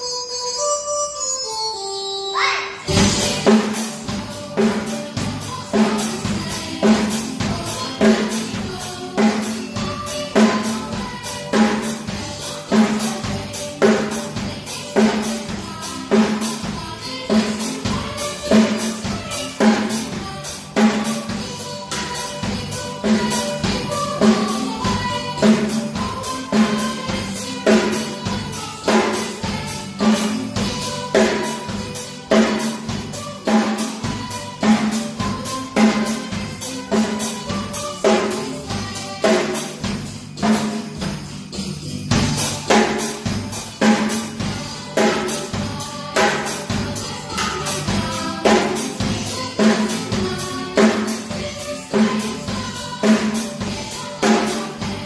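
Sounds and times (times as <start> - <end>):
cymbals: 0.0 - 55.0
snare drum hits: 2.9 - 3.8
bass drum: 2.9 - 4.4.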